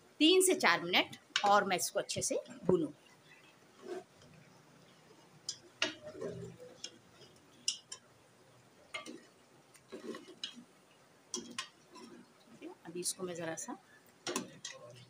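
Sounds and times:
meat frying: 2.8 - 15.0
metal ladle scraping a pot: 3.8 - 4.2, 9.9 - 10.6, 11.4 - 12.3.

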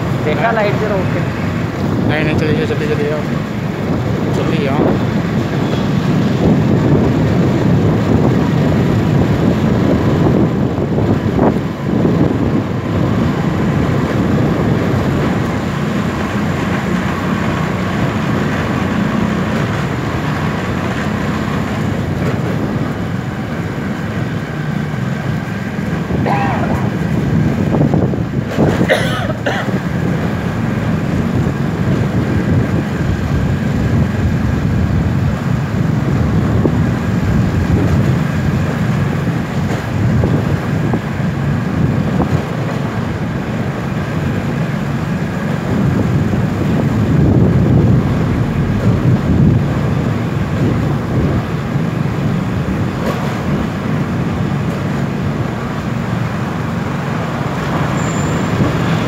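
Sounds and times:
motorcycle engine and road rumble: 0.0 - 59.0
wind on microphone: 1.4 - 59.0.

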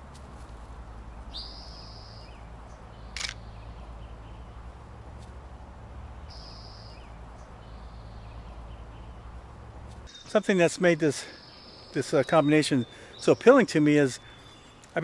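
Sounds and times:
sharp click: 3.2 - 3.4.

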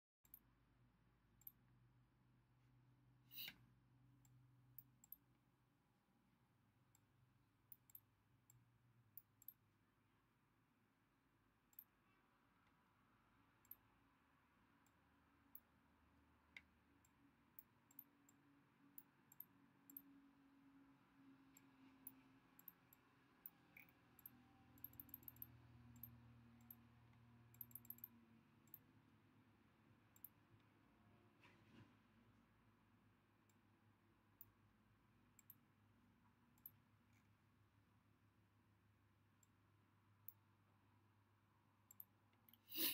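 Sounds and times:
computer mouse clicks: 3.3 - 3.6, 4.2 - 5.3, 16.5 - 18.4, 19.0 - 20.0, 21.5 - 28.8, 35.4 - 35.7, 41.9 - 42.9.

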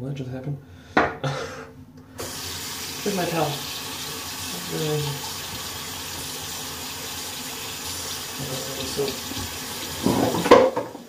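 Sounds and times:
tap running into a sink: 2.2 - 6.5, 8.4 - 11.0
soap containers clattering: 9.4 - 11.0.

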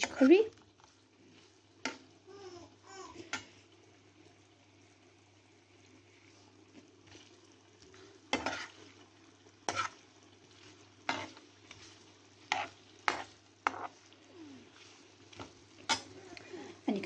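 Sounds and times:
food sizzling in oil: 0.0 - 17.0
steel spoon scraping pan: 8.3 - 8.8, 9.6 - 10.0, 11.0 - 11.8, 12.5 - 13.9.

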